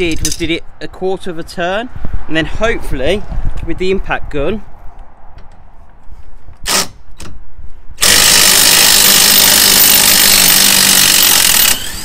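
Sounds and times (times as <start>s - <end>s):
impact wrench running: 8.0s - 12.0s.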